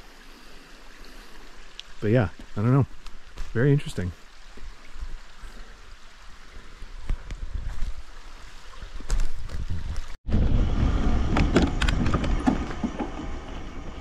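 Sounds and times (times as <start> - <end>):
wind buffeting microphone: 6.8 - 14.0
bike tyre rumble: 7.0 - 14.0
bike rattles and clicks: 11.2 - 13.7.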